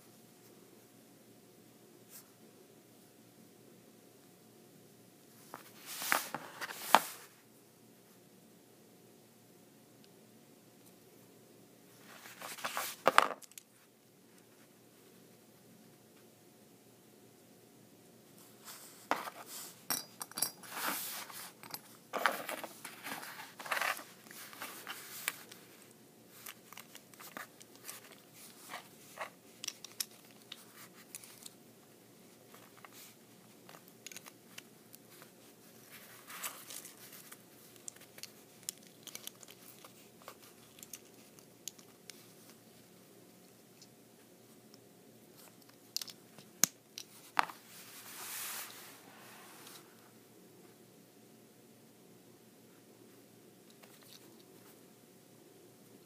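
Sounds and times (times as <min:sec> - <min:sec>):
small plastic parts clicking: 0:29.6 - 0:31.6, 0:33.7 - 0:35.0, 0:36.6 - 0:42.6, 0:45.5 - 0:47.2.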